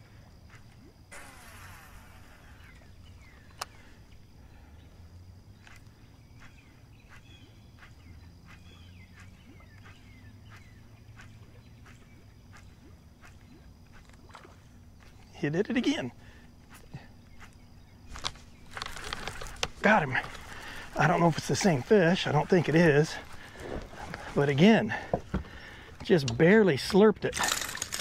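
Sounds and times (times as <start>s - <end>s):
small birds chirping: 0.5s - 27.1s
fishing line hissing off reel: 1.1s - 3.8s.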